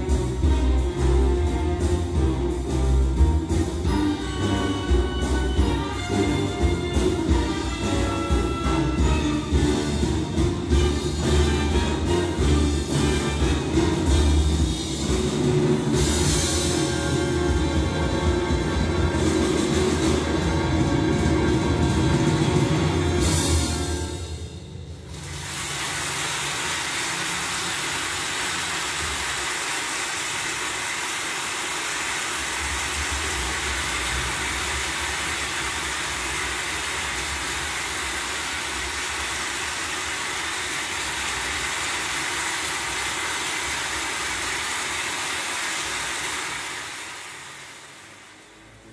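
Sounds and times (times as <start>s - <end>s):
rushing hiss: 25.1s - 48.6s.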